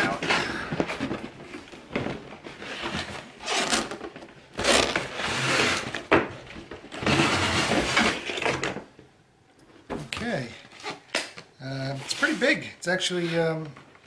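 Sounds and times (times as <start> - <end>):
cardboard scraping and rubbing: 7.0 - 8.5, 11.9 - 13.6.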